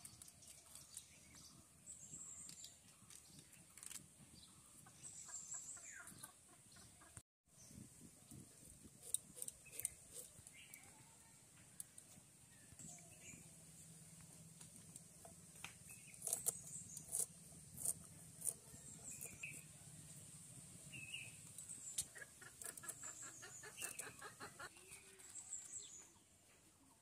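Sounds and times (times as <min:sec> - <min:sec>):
chickens clucking: 0:04.8 - 0:07.2, 0:22.0 - 0:25.4.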